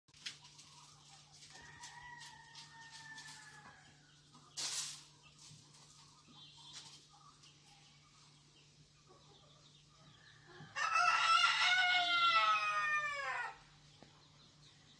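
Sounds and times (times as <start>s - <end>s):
chicken calling: 10.4s - 13.7s.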